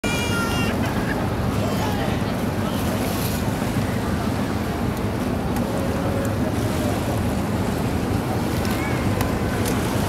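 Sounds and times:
faint voices: 0:00.0 - 0:10.0.

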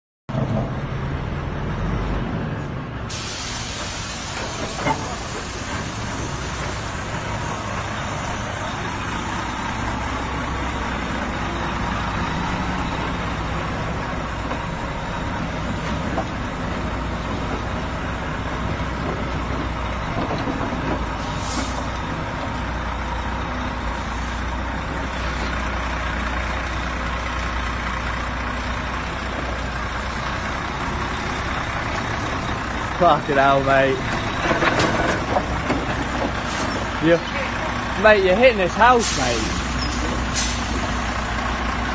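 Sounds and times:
diesel engine running: 0:00.3 - 0:41.9
short sharp air hiss: 0:03.1 - 0:06.6, 0:21.2 - 0:21.9, 0:39.0 - 0:40.8.

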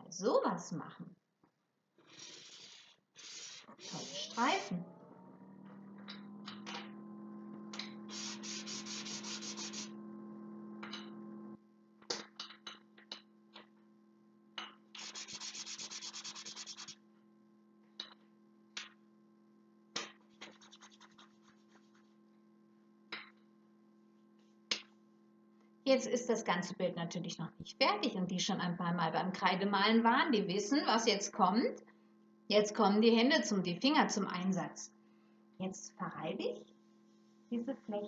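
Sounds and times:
chalk scrubbing on card: 0:02.0 - 0:04.4, 0:08.1 - 0:09.9, 0:15.0 - 0:17.0, 0:20.3 - 0:22.2.

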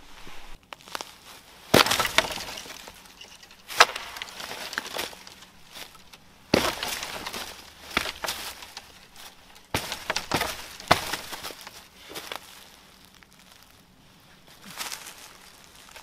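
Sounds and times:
dry branches snapping: 0:00.7 - 0:13.3
small twigs snapping: 0:01.7 - 0:12.5.

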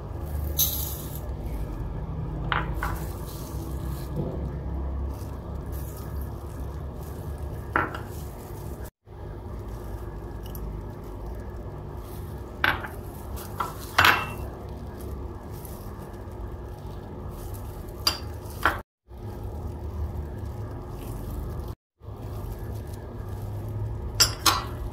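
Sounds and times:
glass bowls clinking on a plate: 0:13.6 - 0:14.5, 0:24.2 - 0:24.8.

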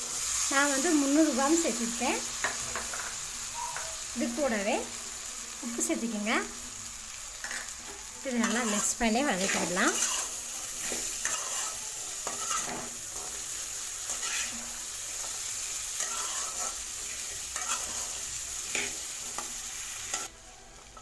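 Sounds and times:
vegetables sizzling in hot oil: 0:00.0 - 0:21.0
metal spatula scraping pan: 0:08.3 - 0:19.5.

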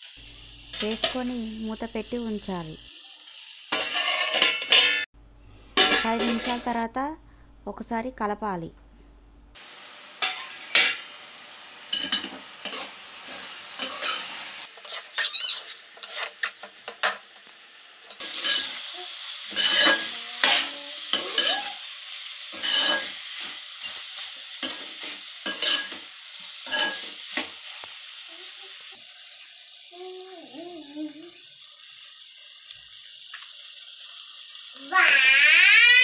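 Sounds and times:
frying sizzle: 0:00.0 - 0:05.1, 0:05.7 - 0:06.9, 0:09.6 - 0:36.0
spatula scraping metal pot: 0:13.8 - 0:16.6.

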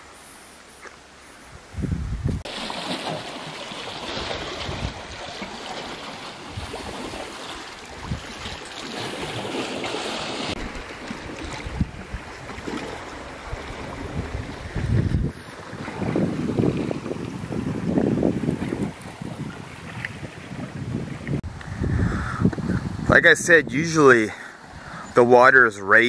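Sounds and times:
wind gusting on microphone: 0:01.4 - 0:02.5, 0:04.0 - 0:25.2
wind hiss: 0:13.2 - 0:25.2.

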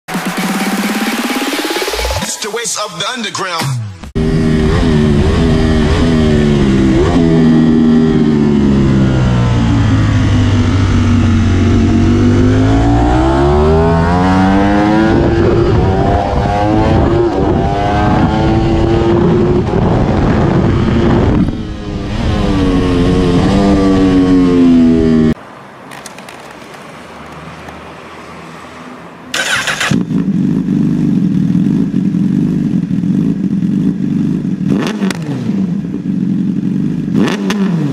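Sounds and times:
motorcycle engine at speed: 0:04.1 - 0:25.4, 0:29.3 - 0:37.9
motorcycle idling: 0:29.3 - 0:34.7, 0:35.8 - 0:37.2.

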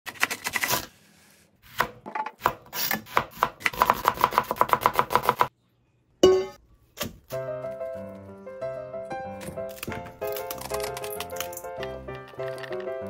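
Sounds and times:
knife chopping on plastic board: 0:01.8 - 0:05.5.

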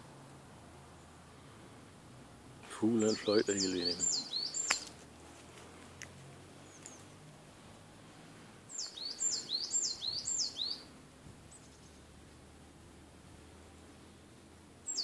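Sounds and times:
faint bird chirps: 0:03.0 - 0:05.0, 0:06.6 - 0:07.2, 0:08.7 - 0:10.9, 0:11.5 - 0:12.1, 0:13.7 - 0:15.0
songbird whistling: 0:03.2 - 0:04.9, 0:08.7 - 0:10.9.

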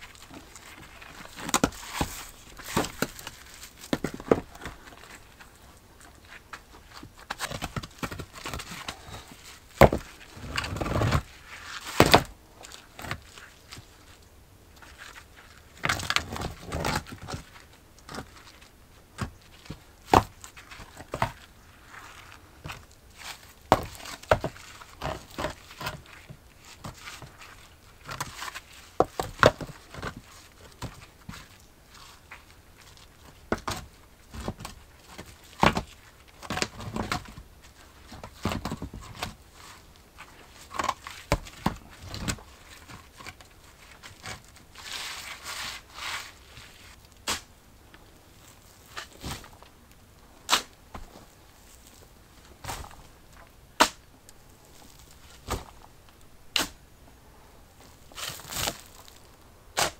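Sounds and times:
stones knocking and scraping: 0:00.2 - 0:14.0, 0:14.8 - 0:47.4.

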